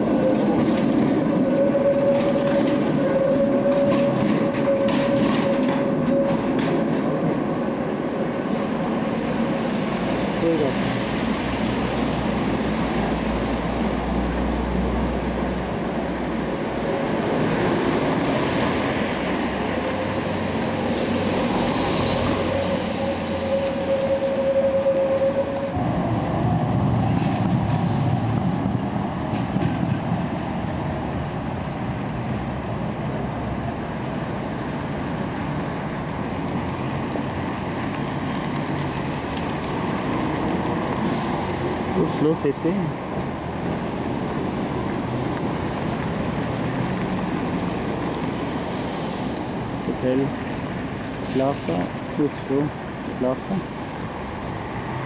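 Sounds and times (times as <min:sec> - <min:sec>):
drawn-out tram whine: 0:00.0 - 0:55.0
street noise: 0:00.0 - 0:55.0
tram running on track: 0:00.0 - 0:55.0.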